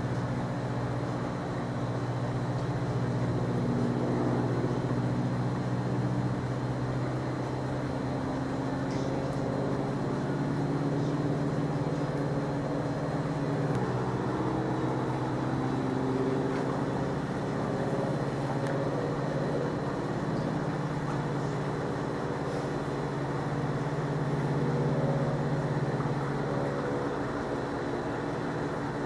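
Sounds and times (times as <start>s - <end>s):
propeller plane droning overhead: 0.0s - 29.0s.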